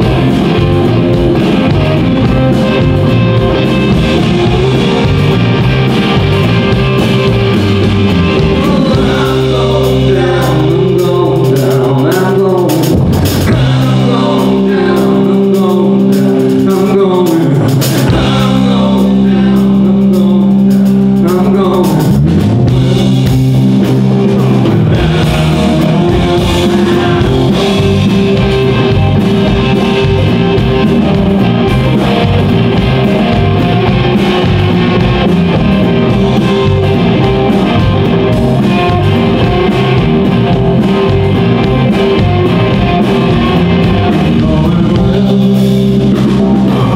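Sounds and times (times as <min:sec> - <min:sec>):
blues-rock band playing: 0:00.0 - 0:46.9
man singing: 0:08.0 - 0:23.1, 0:24.4 - 0:40.1, 0:40.9 - 0:46.9.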